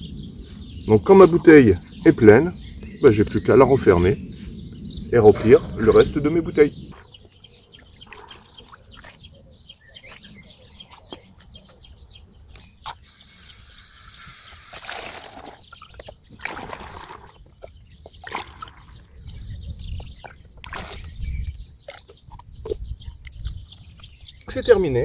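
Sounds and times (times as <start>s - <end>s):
liquid splashing into bottle: 14.4s - 17.4s, 18.2s - 19.0s, 20.6s - 21.2s.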